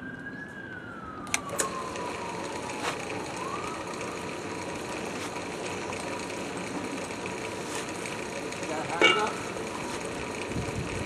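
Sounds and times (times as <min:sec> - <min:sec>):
drill press motor running: 0:01.4 - 0:11.0
dough hook turning through flour: 0:04.3 - 0:11.0.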